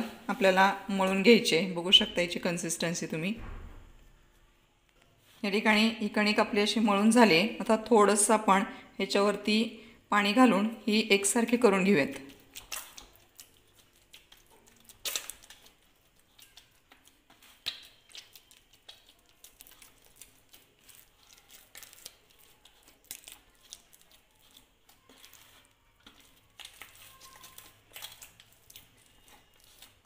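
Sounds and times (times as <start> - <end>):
hands kneading wet dough: 10.2 - 30.0.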